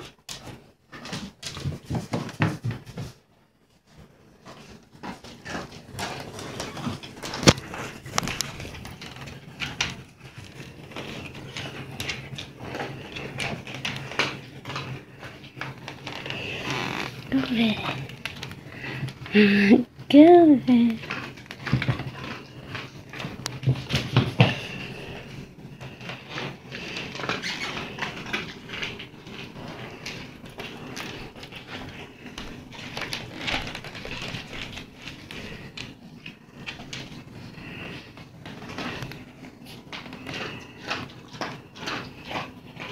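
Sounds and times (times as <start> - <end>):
cat paws tapping on wooden floor: 0.0 - 3.3, 20.9 - 42.9
cord rustling: 14.0 - 19.4.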